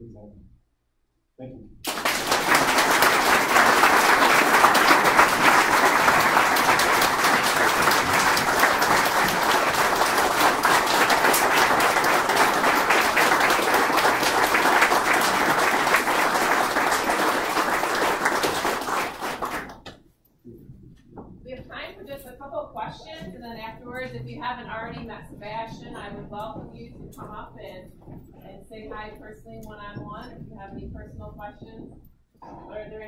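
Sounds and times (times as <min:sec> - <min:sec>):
audience applauding: 0:01.8 - 0:20.0.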